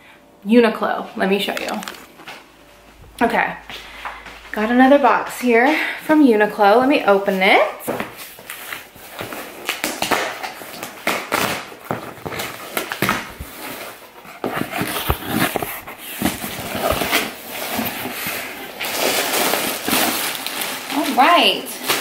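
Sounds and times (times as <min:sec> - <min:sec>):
packing tape pulled off: 0:01.5 - 0:02.2, 0:08.4 - 0:22.0
cardboard flaps scraping and knocking: 0:07.9 - 0:18.5.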